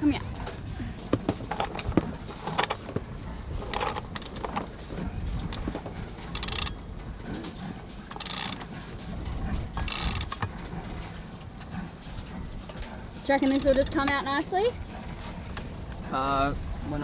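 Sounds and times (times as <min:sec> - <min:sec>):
low steady rumble: 0:00.0 - 0:17.0
winch ratcheting: 0:01.0 - 0:04.8, 0:05.4 - 0:14.4.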